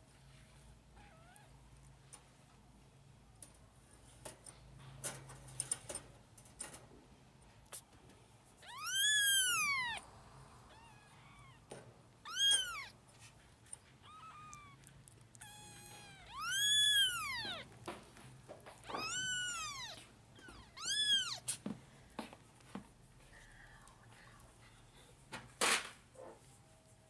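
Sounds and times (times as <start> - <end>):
kittens mewing: 8.6 - 10.0, 10.6 - 13.0, 14.0 - 17.8, 18.8 - 21.6.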